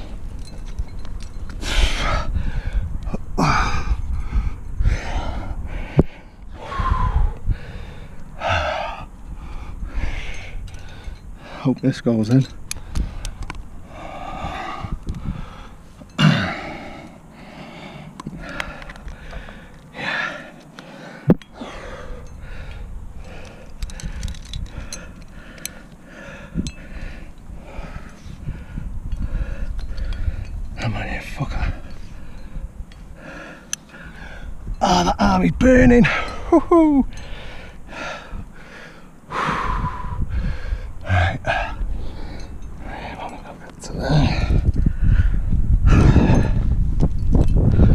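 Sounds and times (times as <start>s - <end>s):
hard rapid breathing: 1.6s - 11.8s, 12.8s - 30.6s, 37.1s - 46.8s.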